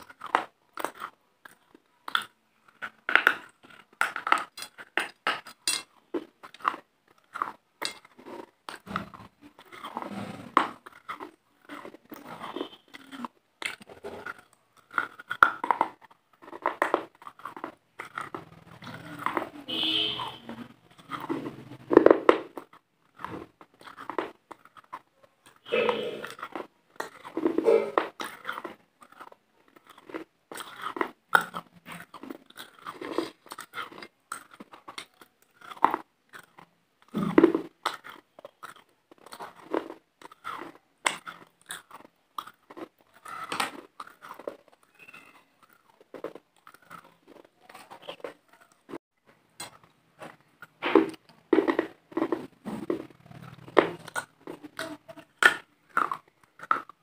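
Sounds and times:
crunchy chewing: 0.0s - 57.0s
mouth clicks: 40.2s - 45.9s.

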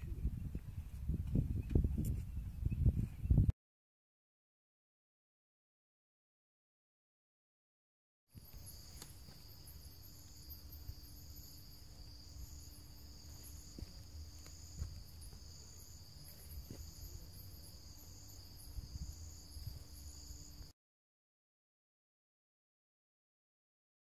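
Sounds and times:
higher insect trill: 8.3s - 20.7s
insects trilling: 8.4s - 20.7s.

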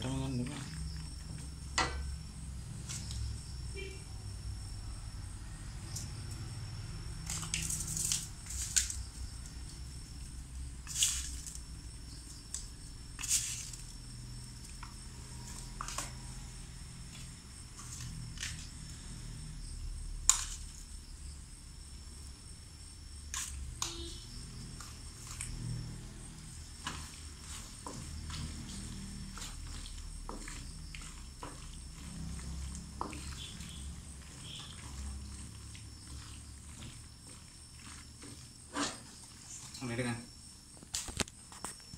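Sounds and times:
wooden spatula scraping a wok: 13.1s - 19.4s, 23.4s - 40.7s.

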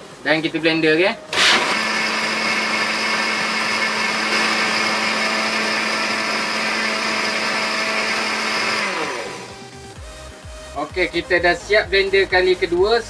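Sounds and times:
blender motor whining: 1.3s - 10.0s.

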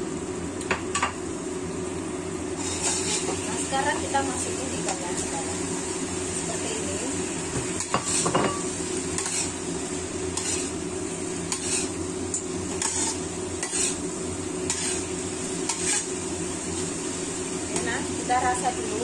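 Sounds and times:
sauce sizzling: 0.0s - 19.0s
metal spatula scraping in a wok: 2.6s - 3.4s, 7.8s - 9.7s, 10.3s - 10.8s, 11.5s - 16.2s.

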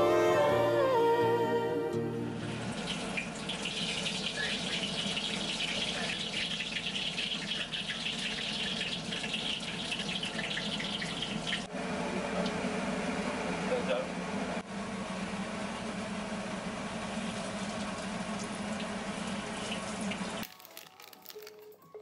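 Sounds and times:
pastries sizzling in hot oil: 2.8s - 11.7s.

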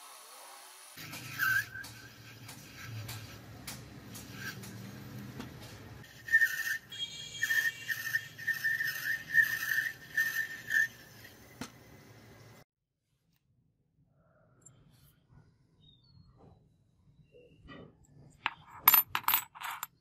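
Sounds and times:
cutting tool squealing on metal: 1.0s - 5.1s, 6.0s - 11.4s.

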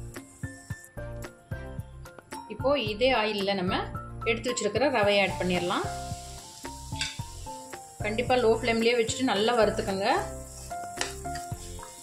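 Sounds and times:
semolina sizzling in oil: 0.0s - 1.7s, 4.4s - 12.0s
soft background music: 0.0s - 12.0s.

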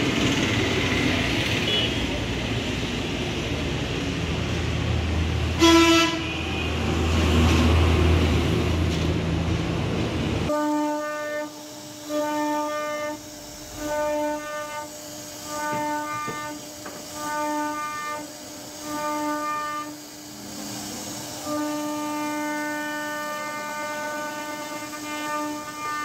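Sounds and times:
horn blast: 5.5s - 7.5s, 10.5s - 20.1s, 21.4s - 26.0s.

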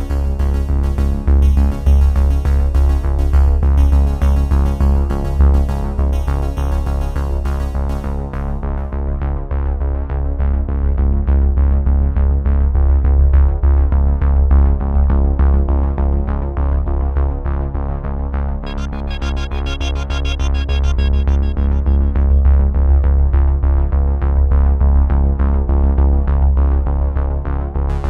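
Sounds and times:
electronic music with heavy bass: 0.0s - 8.7s, 18.6s - 23.6s.

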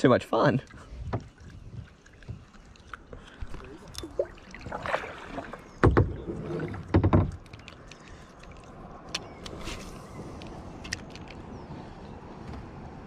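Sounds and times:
dull knocks on plastic hull: 5.8s - 7.4s.

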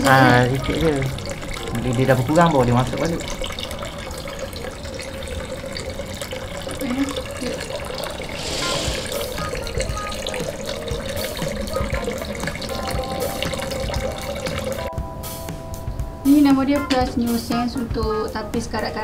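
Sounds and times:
water trickling into bucket: 0.0s - 14.9s.

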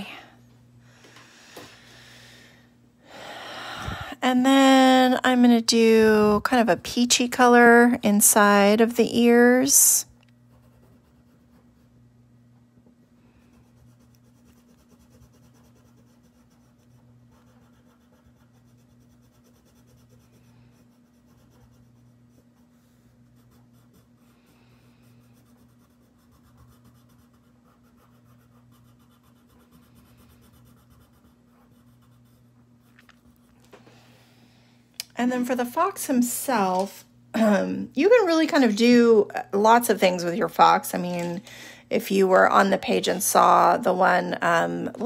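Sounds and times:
pencil scratching on paper: 10.5s - 11.9s, 13.4s - 33.6s.

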